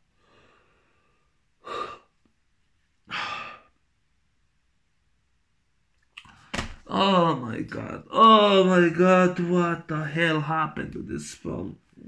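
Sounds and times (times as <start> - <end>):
intake of breath: 0.1 - 2.1.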